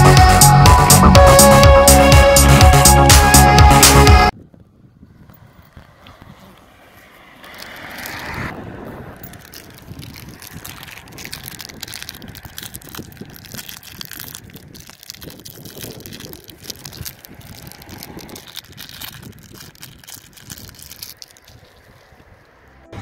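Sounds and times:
plastic wrapper crinkling: 7.4s - 22.7s.

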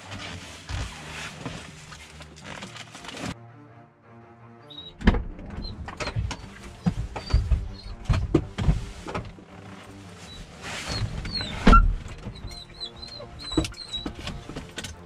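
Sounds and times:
bags rustling: 0.0s - 3.4s
knocks and thuds in van cab: 6.0s - 9.4s.

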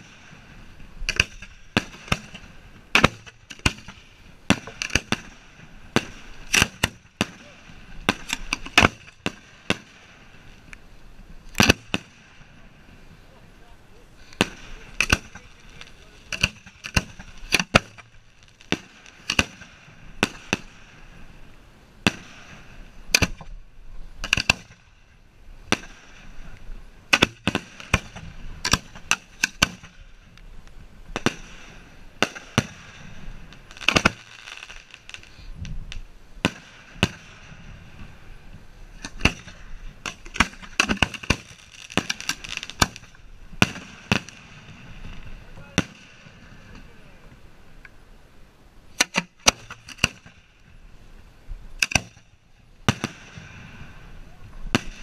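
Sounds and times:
fireworks bangs: 0.0s - 10.7s, 11.5s - 23.6s, 25.6s - 30.4s, 31.1s - 47.5s, 51.8s - 55.0s
fireworks hiss and crackle: 0.0s - 55.0s.

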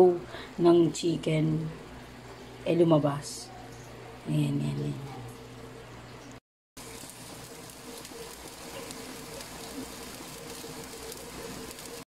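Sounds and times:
rice sizzling in oil: 6.8s - 12.0s.

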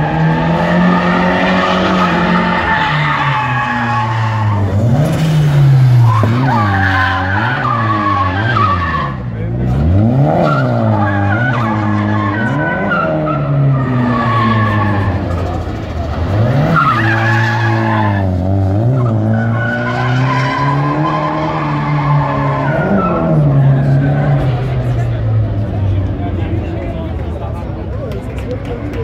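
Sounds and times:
car engine revving hard: 3.8s - 15.6s.

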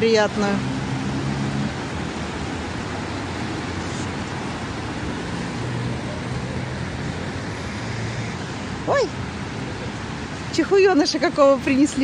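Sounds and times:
fountain jets splashing into pool: 0.0s - 12.0s
low engine hum: 0.0s - 12.0s
road traffic: 0.0s - 12.0s.

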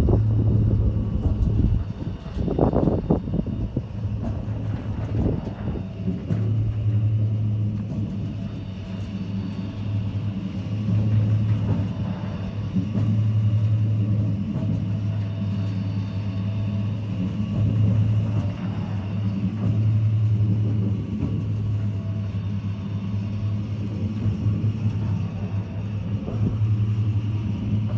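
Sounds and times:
pumpjack low hum: 0.0s - 27.9s.

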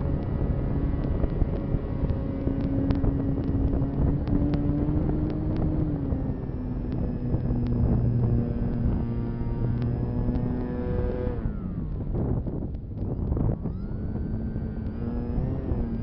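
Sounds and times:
electric motor and propeller hum: 0.0s - 16.0s
wind rushing over microphone: 0.0s - 16.0s
faint sharp clicks: 1.0s - 5.8s, 6.8s - 7.8s, 9.6s - 10.7s.

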